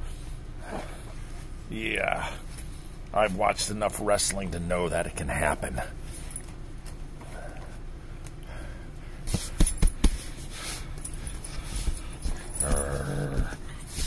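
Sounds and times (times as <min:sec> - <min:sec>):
knocks and rustling on couch: 0:09.3 - 0:10.4
small dog growling: 0:12.6 - 0:13.6.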